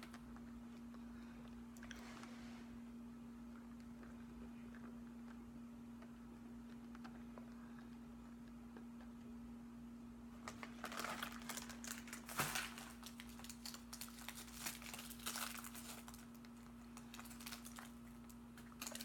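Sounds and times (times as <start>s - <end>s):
candy wrapper crinkling: 10.4s - 19.0s.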